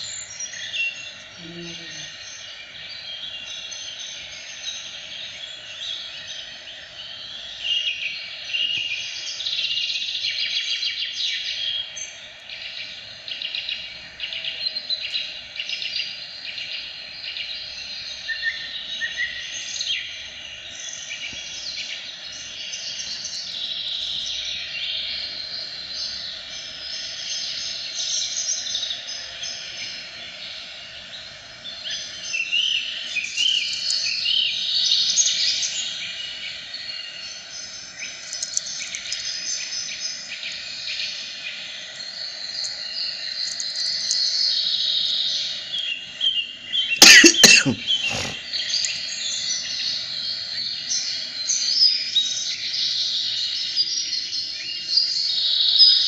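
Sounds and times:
birds chirping: 0:00.0 - 0:09.6, 0:41.6 - 0:51.3.

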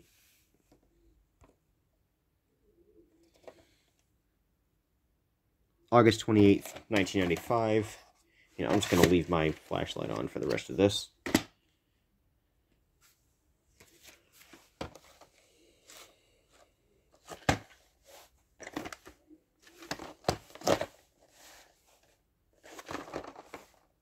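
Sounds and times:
plastic cases rustling and scraping: 0:03.2 - 0:03.8, 0:06.4 - 0:11.5, 0:13.0 - 0:24.0.

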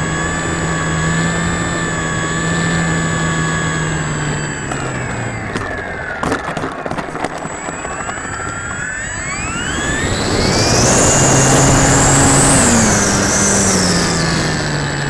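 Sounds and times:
electric motor and propeller whine: 0:00.0 - 0:15.0
wheels clicking and knocking on runway: 0:00.0 - 0:15.0.

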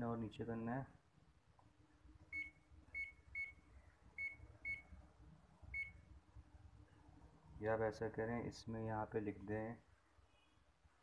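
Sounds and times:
short high beeps: 0:02.3 - 0:03.6, 0:04.2 - 0:05.0.

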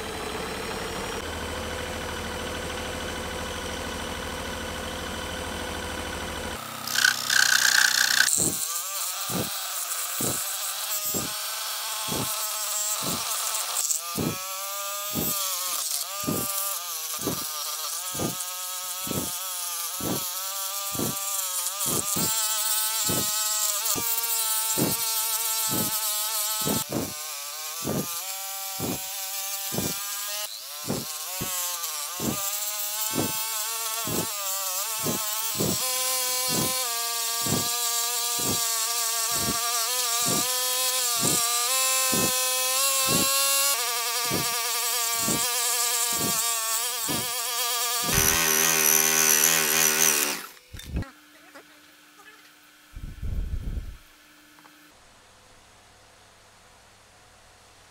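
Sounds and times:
scroll saw buzzing whine: 0:00.0 - 0:55.0.

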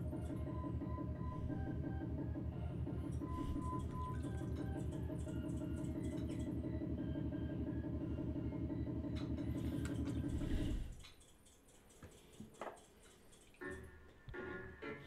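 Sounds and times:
background music with steady pulse: 0:00.0 - 0:15.0
small clicks and drips: 0:10.9 - 0:13.9.

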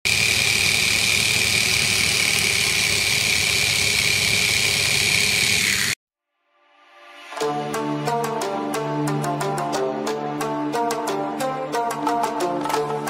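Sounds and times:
toy motors whining: 0:00.1 - 0:06.0.

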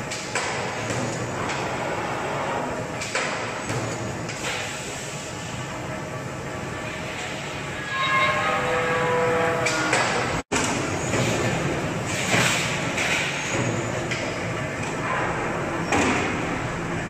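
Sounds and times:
workshop machine noise: 0:00.0 - 0:17.0
metal cylinder scraping: 0:07.6 - 0:10.2
steel sheet rubbing and ringing: 0:07.6 - 0:10.4.

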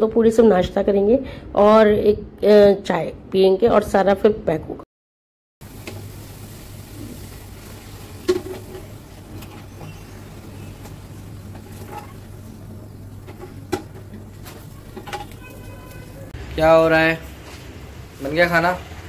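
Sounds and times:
kitchen utensils clinking: 0:13.2 - 0:16.3.

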